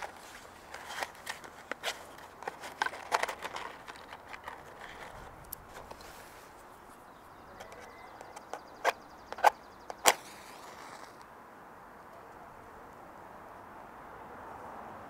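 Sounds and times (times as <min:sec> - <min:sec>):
clicks taps and rustles of handling: 0:00.0 - 0:06.2.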